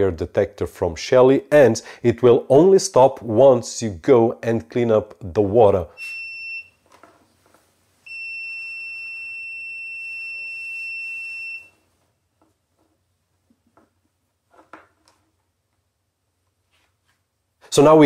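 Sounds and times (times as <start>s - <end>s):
high-pitched alarm beep: 6.0s - 6.8s, 8.1s - 11.8s.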